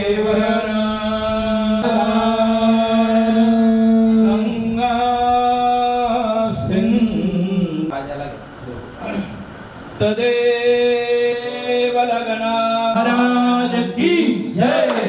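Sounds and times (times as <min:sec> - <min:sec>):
person chanting long steady notes: 0:00.0 - 0:07.9.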